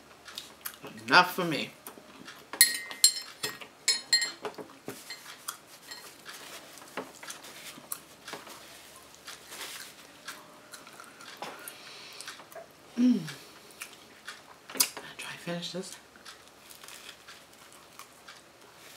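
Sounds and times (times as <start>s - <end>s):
metal scoop clinking on lid: 2.6s - 4.4s
paper napkin rustling: 8.5s - 10.1s.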